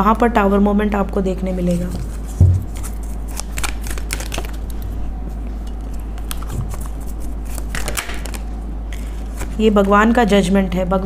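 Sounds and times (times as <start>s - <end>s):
steady low hum: 0.0s - 11.0s
cards being shuffled: 1.7s - 4.8s, 5.8s - 10.0s
low thump: 2.4s - 2.7s.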